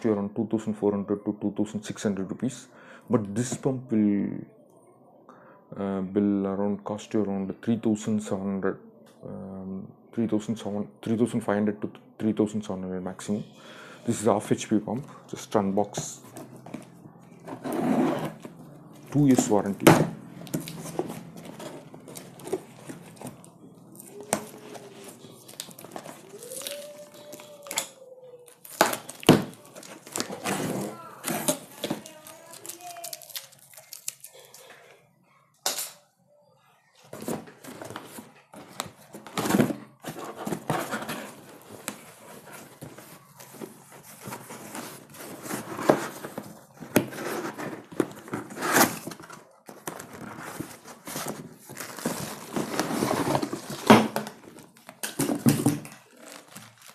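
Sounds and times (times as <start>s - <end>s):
cardboard rustling: 15.9s - 27.6s, 28.6s - 33.3s, 37.1s - 56.9s
packing tape tearing: 24.0s - 34.6s.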